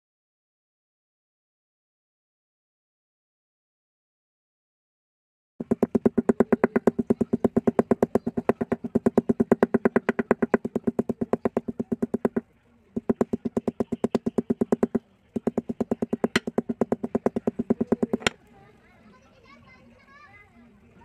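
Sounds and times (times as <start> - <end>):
small hammer tapping on metal: 5.6 - 12.4, 13.0 - 18.4.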